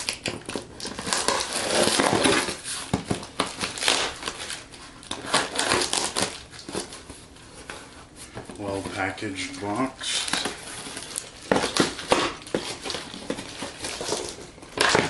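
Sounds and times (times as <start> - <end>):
box cutter slicing packing tape: 0.0 - 6.9, 10.0 - 15.0.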